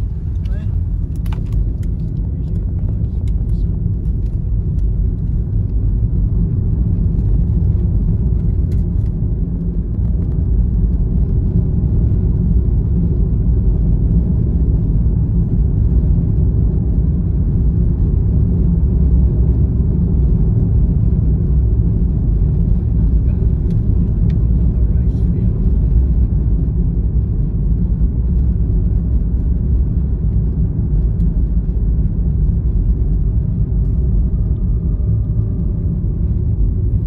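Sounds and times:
car tyre and engine rumble: 0:00.0 - 0:37.0.

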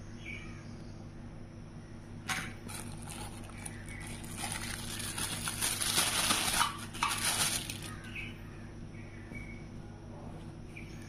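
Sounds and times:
plastic bag crinkling: 0:02.6 - 0:08.1.

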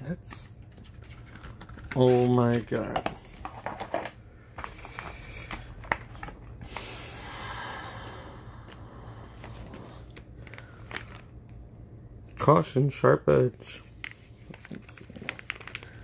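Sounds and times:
plastic bag crinkling: 0:09.5 - 0:11.3, 0:14.1 - 0:16.0.

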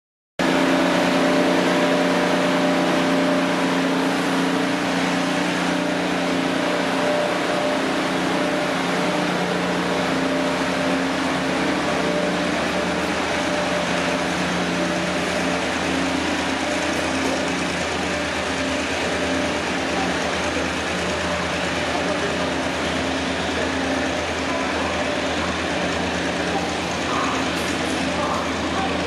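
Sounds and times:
diesel engine drone: 0:00.4 - 0:29.0
train wheels rolling on rail: 0:00.4 - 0:29.0.

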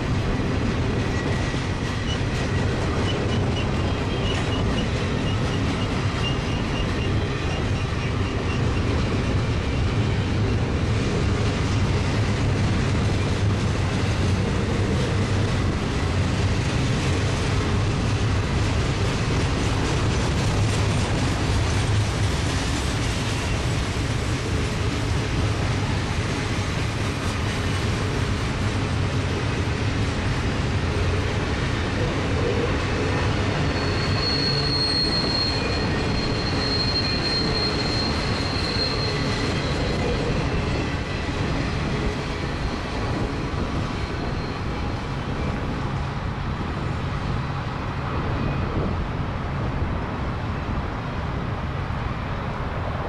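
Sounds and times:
freight train rumbling past: 0:00.0 - 0:53.0
high wheel squeal: 0:01.1 - 0:10.8, 0:32.0 - 0:45.8.

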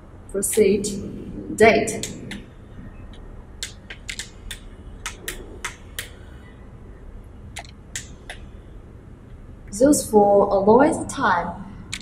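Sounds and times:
plastic buttons clicking: 0:03.6 - 0:06.2.

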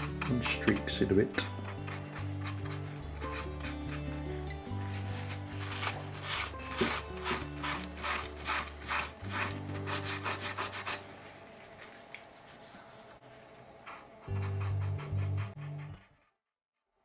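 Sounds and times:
cloth rubbing over painted wall: 0:04.8 - 0:13.4.

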